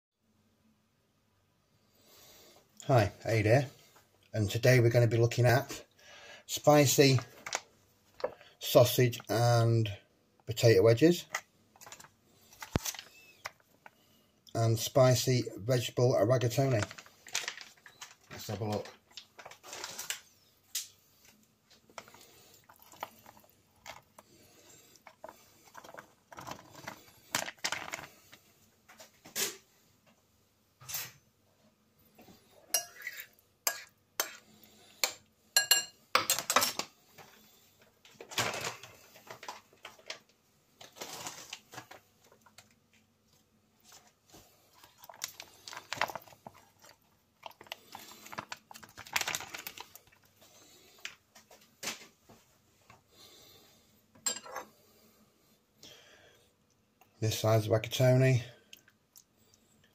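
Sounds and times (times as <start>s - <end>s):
food squeezed from foil pouches: 11.8s - 13.7s, 44.8s - 51.2s
spoon scraping a ceramic bowl: 32.7s - 34.4s, 54.3s - 54.7s.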